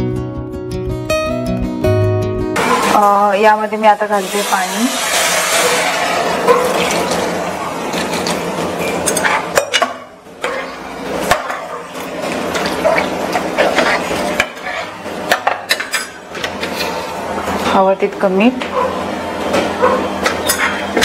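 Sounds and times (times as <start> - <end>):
water pouring into pot: 4.2 - 8.4
ladle scraping metal pot: 4.8 - 17.1.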